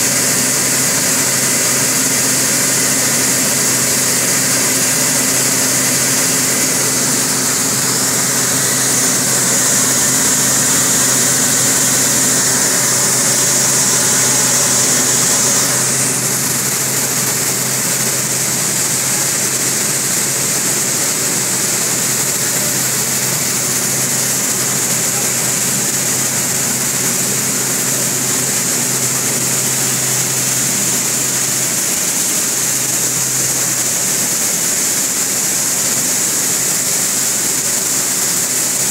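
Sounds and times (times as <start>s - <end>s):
rush of fan air: 0.0s - 38.9s
low motor hum: 4.3s - 18.6s.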